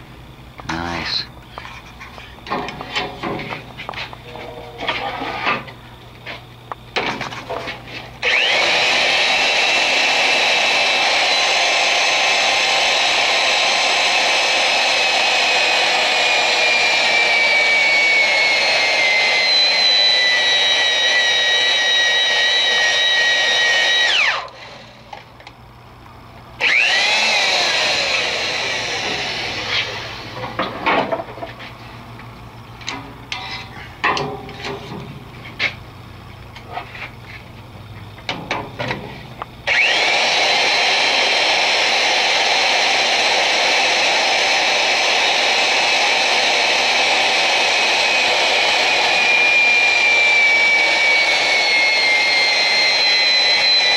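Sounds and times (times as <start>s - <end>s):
electric drill whine: 4.8s - 31.3s, 39.6s - 53.9s.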